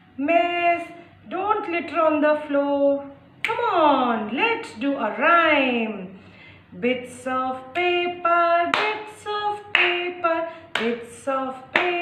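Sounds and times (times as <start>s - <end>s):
hands clapping a steady beat: 7.7s - 8.0s, 8.6s - 12.0s.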